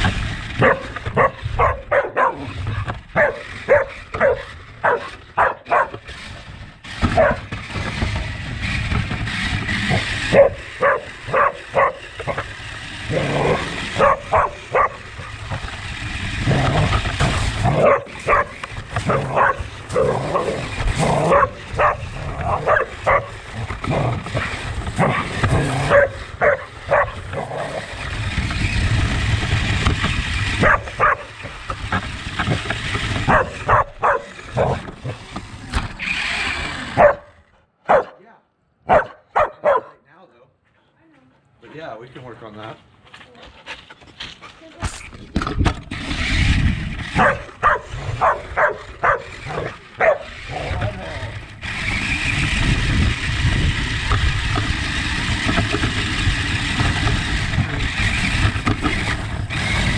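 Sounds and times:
dog barking and yipping: 0.6s - 6.2s, 7.0s - 7.5s, 9.9s - 15.4s, 17.6s - 23.6s, 24.4s - 28.0s, 30.6s - 31.4s, 33.2s - 35.2s, 36.3s - 38.2s, 38.9s - 40.0s, 47.0s - 50.7s.

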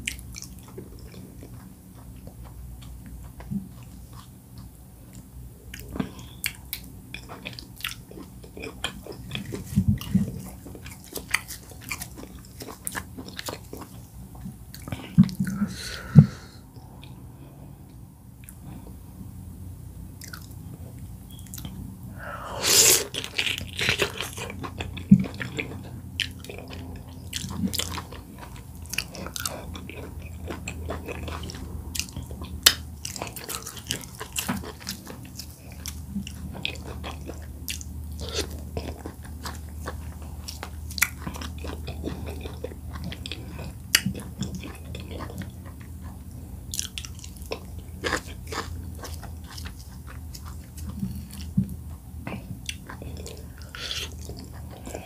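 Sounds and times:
person chewing and swallowing: 0.0s - 17.2s, 20.2s - 55.0s
low steady hum: 0.0s - 55.0s.

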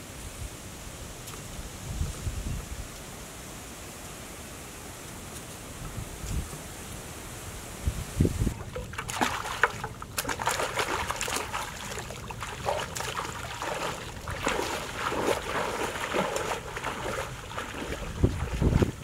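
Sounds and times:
water splashing around legs: 8.5s - 19.0s.

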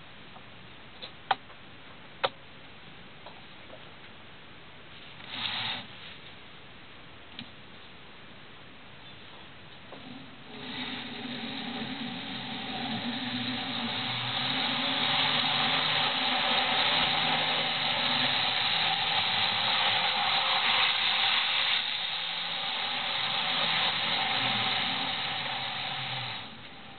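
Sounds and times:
low motor hum: 9.9s - 26.9s
train wheels hissing on rails: 10.0s - 26.9s.

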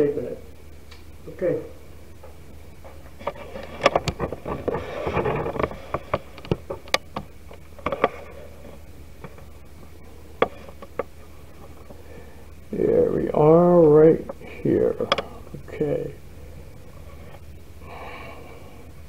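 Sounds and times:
steady low hum: 0.0s - 19.0s
rustling: 2.1s - 12.6s.

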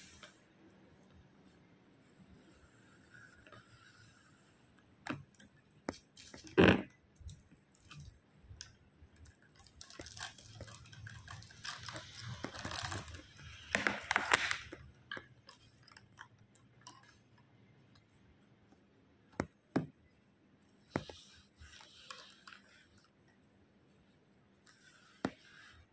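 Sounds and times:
plastic stems rustling: 8.7s - 17.2s.

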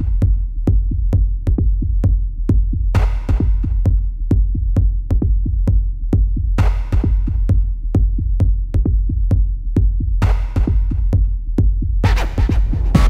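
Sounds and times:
deep bass: 0.0s - 13.0s
drum machine beat: 0.0s - 13.0s
electronic music: 12.0s - 13.0s.

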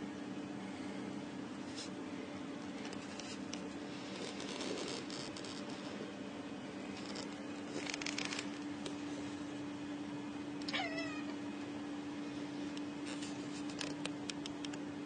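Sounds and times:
cat meowing: 10.6s - 11.3s.

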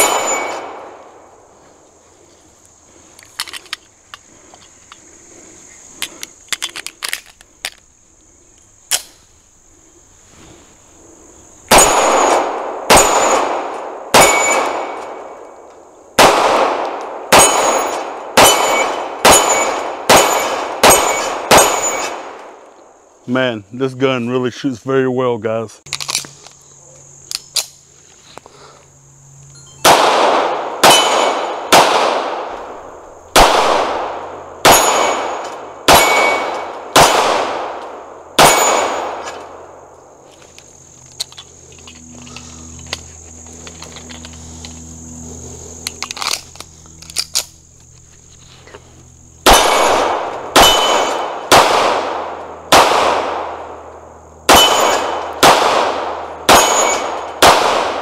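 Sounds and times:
pistol shots echoing: 0.0s - 1.3s, 11.7s - 15.4s, 16.2s - 22.4s, 29.8s - 39.9s, 49.4s - 58.0s.

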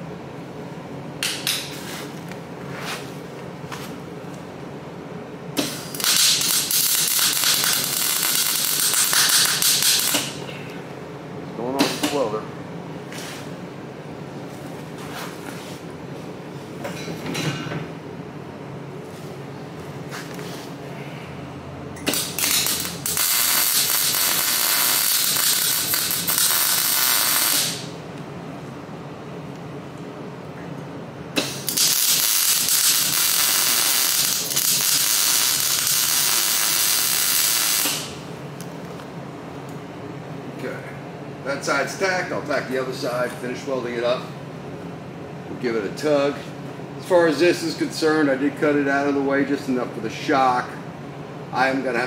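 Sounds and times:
welding arc crackling: 5.6s - 10.4s, 22.1s - 28.0s, 31.4s - 38.2s.

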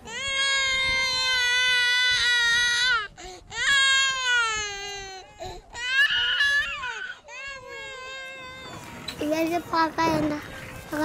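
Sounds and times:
baby crying: 0.0s - 8.9s.

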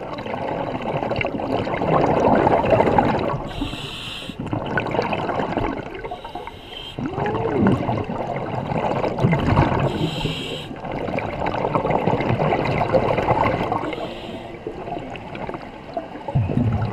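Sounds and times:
bubbling exhalations: 0.0s - 15.6s, 16.3s - 16.9s
regulator inhalation hiss: 3.5s - 4.4s, 6.2s - 7.0s, 9.9s - 10.7s, 13.9s - 14.6s.

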